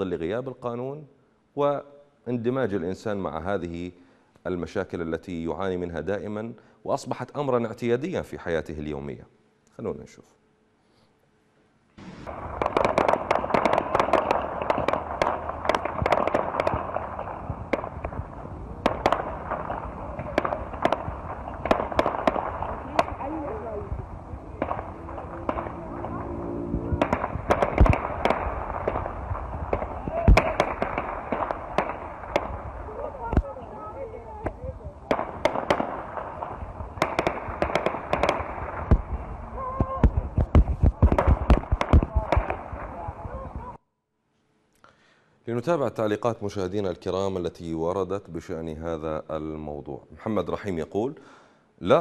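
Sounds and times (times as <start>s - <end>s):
outdoor background noise: 0.0s - 52.0s
gunshots: 12.0s - 43.2s.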